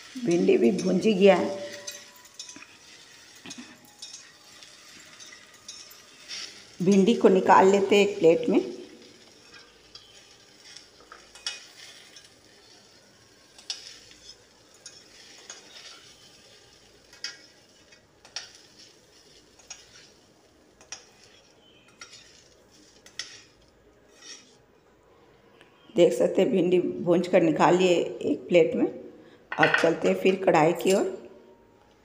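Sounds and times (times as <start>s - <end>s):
faint pan sizzle: 0.0s - 24.9s
spatula scraping a metal pan: 0.3s - 7.2s, 9.0s - 20.2s, 20.8s - 24.6s.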